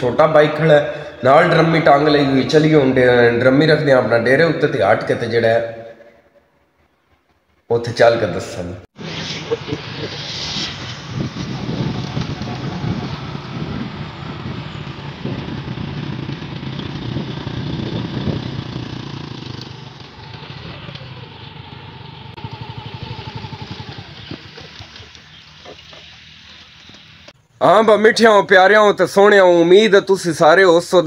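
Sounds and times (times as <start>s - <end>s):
wind noise: 9.0s - 21.3s
motorcycle engine running: 11.5s - 27.1s.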